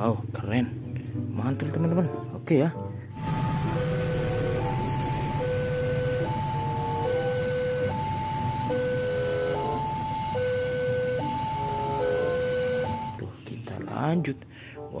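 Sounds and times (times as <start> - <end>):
level-crossing alarm two-tone warning: 3.1 - 13.2.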